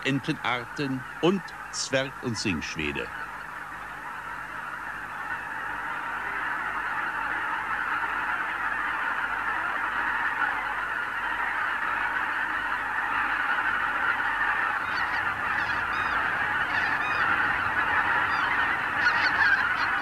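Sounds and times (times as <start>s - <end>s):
geese honking: 0.0s - 20.0s
single higher goose calls: 0.0s - 20.0s.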